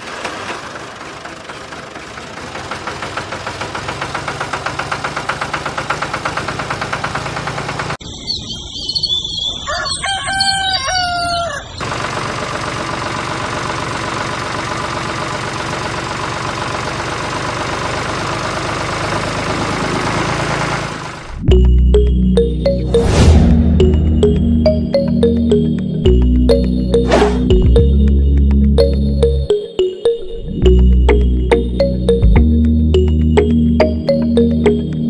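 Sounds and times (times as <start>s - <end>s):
engine-driven machine running: 0.0s - 8.0s, 11.8s - 28.9s
small engine pulsing: 0.0s - 8.0s, 11.8s - 29.3s
rooster crowing: 9.6s - 11.8s.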